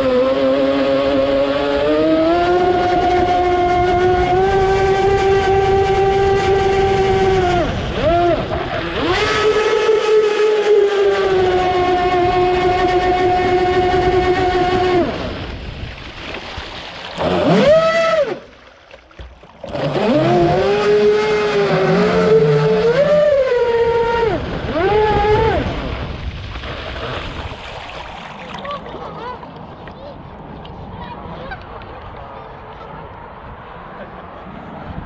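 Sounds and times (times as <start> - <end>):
model boat motor whining: 0.0 - 15.6, 17.0 - 26.2.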